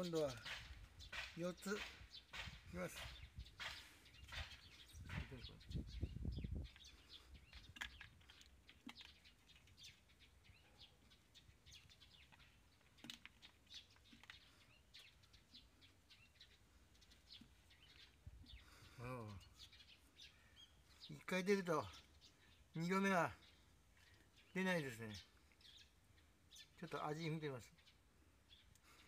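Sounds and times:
small birds chirping: 0.0s - 29.0s.

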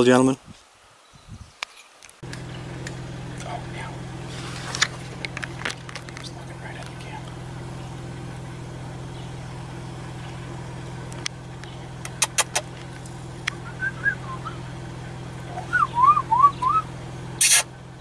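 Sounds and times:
vehicle engine idling: 2.2s - 18.0s
sharp clicks: 11.1s - 13.6s
bird whistling: 13.6s - 14.7s, 15.5s - 17.6s
loud short burst of noise: 17.4s - 17.7s.

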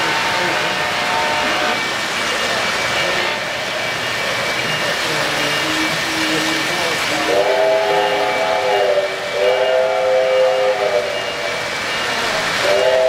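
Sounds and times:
model locomotive steam whistle chord: 0.0s - 2.0s, 7.2s - 13.0s
rumble of model trains on track: 0.0s - 13.0s.

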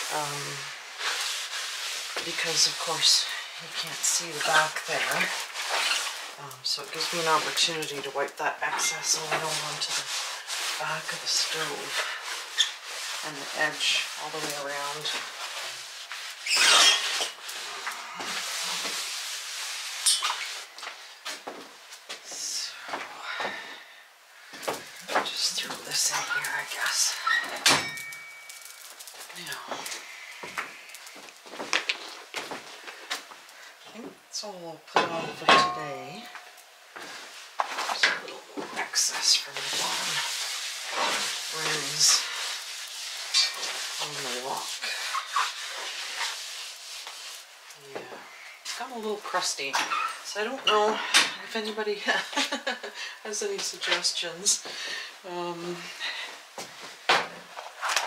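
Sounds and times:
cloth rag rubbing stove top: 0.0s - 22.9s, 23.5s - 50.6s, 51.4s - 58.0s
cloth scrubbing: 25.2s - 27.4s, 38.8s - 47.6s.

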